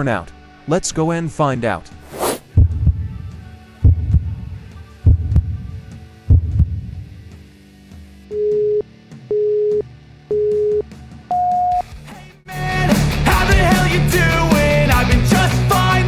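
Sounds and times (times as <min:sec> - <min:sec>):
heartbeat thumps: 0:02.4 - 0:07.1.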